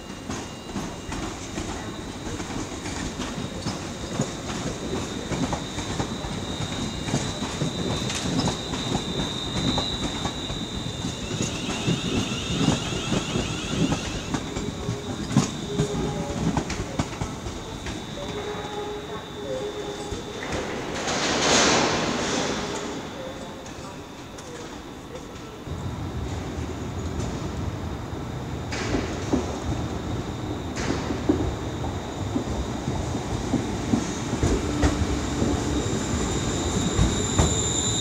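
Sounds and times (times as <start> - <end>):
train rumble: 0.0 - 38.0.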